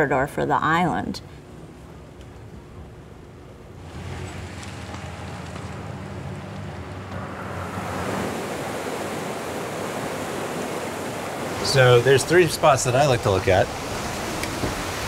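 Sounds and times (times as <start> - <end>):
wind: 0.0 - 15.0
sea water rushing: 3.7 - 15.0.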